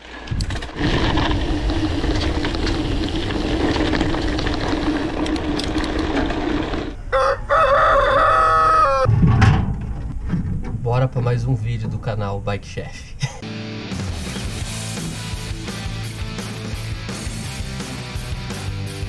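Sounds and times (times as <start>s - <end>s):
rooster crowing: 7.0s - 9.1s.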